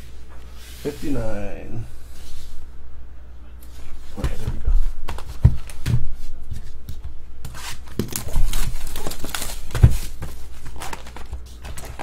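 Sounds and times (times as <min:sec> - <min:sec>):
plastic wrap crinkling and tearing: 0:07.8 - 0:12.0.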